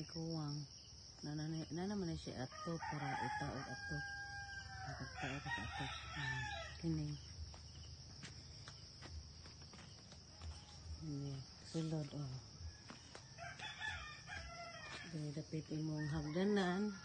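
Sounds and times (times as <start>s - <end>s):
insects trilling: 0.0s - 17.0s
rooster crowing: 2.5s - 6.9s, 12.7s - 15.2s, 15.9s - 17.0s.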